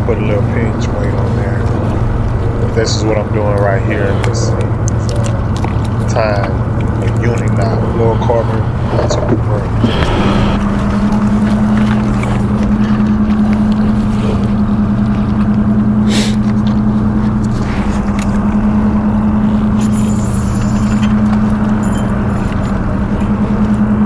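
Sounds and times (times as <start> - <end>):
low motor hum: 0.0 - 24.0.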